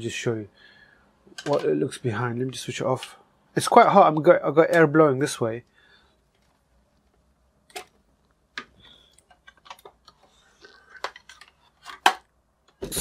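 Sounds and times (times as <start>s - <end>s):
handling clicks and knocks: 1.3s - 1.8s, 6.3s - 10.3s.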